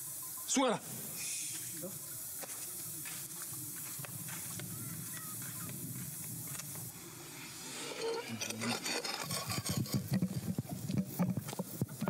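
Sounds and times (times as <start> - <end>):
faint high chirps: 0.0 - 2.3
outdoor background hiss: 0.0 - 12.0.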